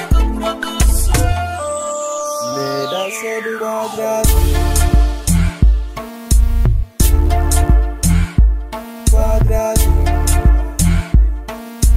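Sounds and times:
heavy deep bass beat: 0:00.0 - 0:01.4, 0:04.2 - 0:11.9
synth tone sweeping downward: 0:00.9 - 0:06.1.

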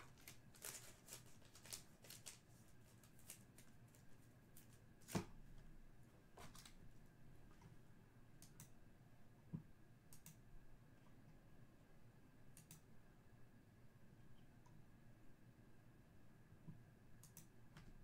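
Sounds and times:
computer mouse clicks: 0:08.4 - 0:08.8, 0:10.1 - 0:10.4, 0:12.5 - 0:12.9, 0:17.2 - 0:17.9.

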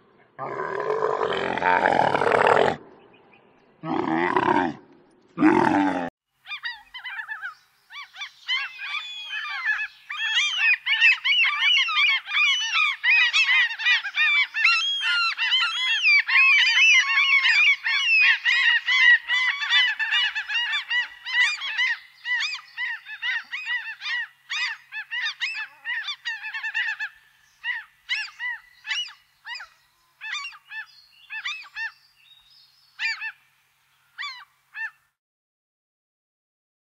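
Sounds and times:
seagulls calling: 0:06.5 - 0:32.0, 0:33.0 - 0:33.4, 0:34.2 - 0:35.0.

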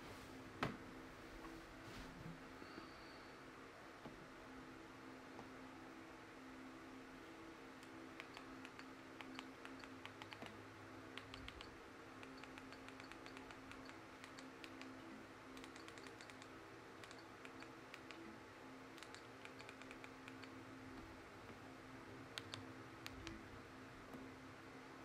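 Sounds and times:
low steady hum: 0:00.0 - 0:25.0
remote control clicks: 0:07.8 - 0:10.6, 0:11.2 - 0:15.0, 0:18.9 - 0:20.6, 0:22.3 - 0:23.4.

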